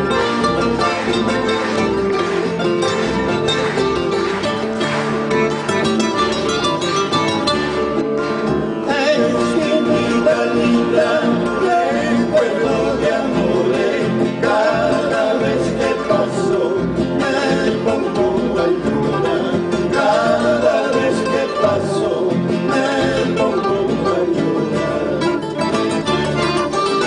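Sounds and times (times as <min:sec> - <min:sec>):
acoustic guitars: 0:00.0 - 0:27.0
man singing: 0:08.8 - 0:25.7.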